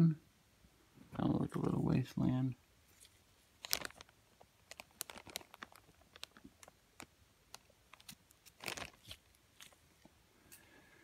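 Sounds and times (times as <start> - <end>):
fabric rustle: 2.8 - 6.4, 8.0 - 10.0
soft clicks and crinkles: 2.8 - 10.7.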